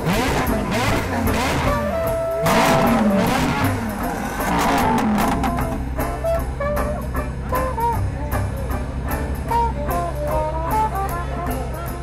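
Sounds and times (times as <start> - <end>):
car engine revving: 0.0 - 7.2
guitar music with drum beat: 0.0 - 12.0.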